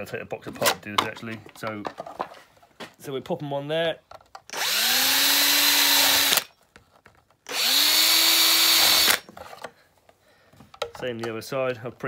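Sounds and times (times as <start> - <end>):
cordless drill whining: 4.5 - 6.6, 7.4 - 9.3.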